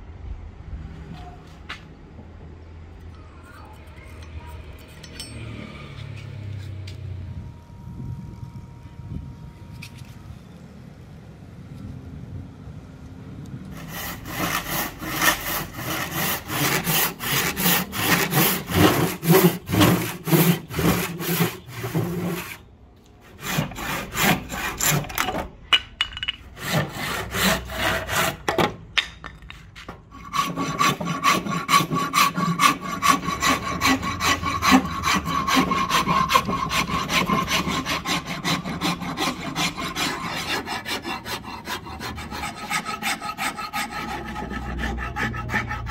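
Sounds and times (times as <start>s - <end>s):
handsaw cutting wood: 13.7s - 25.3s, 26.6s - 28.5s, 30.1s - 45.9s
metal file rasping wood: 13.7s - 25.5s, 26.5s - 28.6s, 30.1s - 45.9s.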